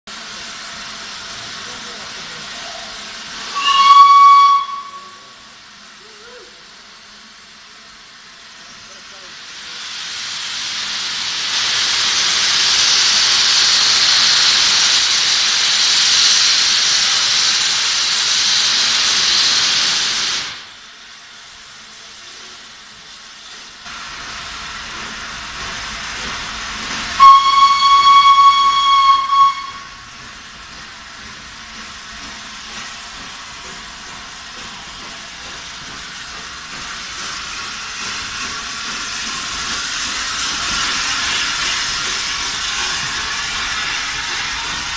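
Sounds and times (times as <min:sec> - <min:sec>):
steam hissing from locomotive: 0:00.1 - 0:44.9
steam locomotive running: 0:00.1 - 0:44.9
steam whistle: 0:03.5 - 0:05.4, 0:27.2 - 0:30.0.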